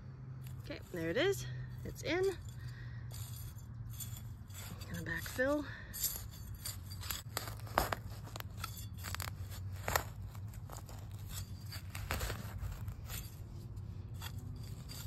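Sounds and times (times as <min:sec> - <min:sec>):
metal trowel scraping soil: 0:00.4 - 0:15.0.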